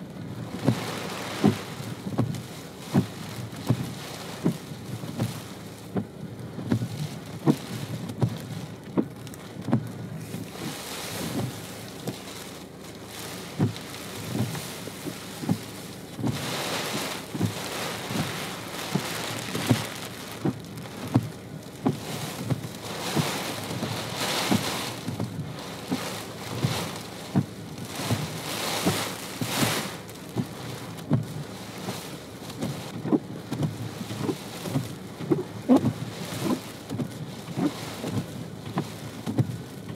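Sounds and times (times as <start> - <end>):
sleet and snow hissing in wind: 10.4 - 21.0, 22.0 - 27.3, 27.9 - 30.9.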